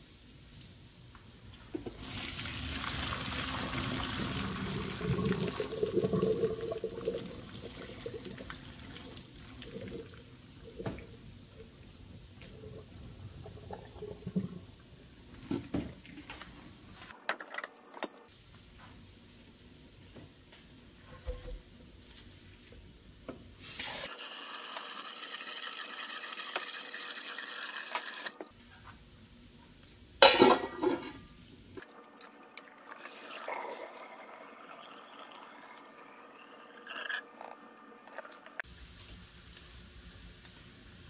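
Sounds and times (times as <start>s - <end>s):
water running into a pot: 1.8s - 11.1s, 23.6s - 28.4s, 32.8s - 41.0s
water pouring into sink: 2.0s - 11.1s, 23.8s - 28.3s, 32.9s - 36.8s
metal pot and lid clattering: 30.2s - 31.2s.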